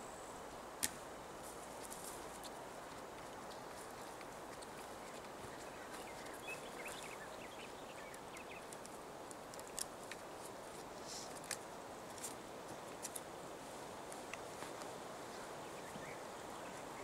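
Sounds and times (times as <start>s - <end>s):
birds chirping: 3.9s - 9.0s, 15.2s - 17.0s.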